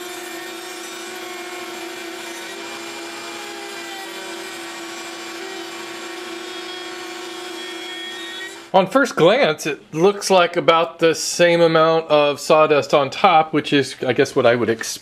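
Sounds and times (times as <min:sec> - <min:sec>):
table router running: 0:00.0 - 0:08.7
shop vacuum running: 0:00.0 - 0:08.8.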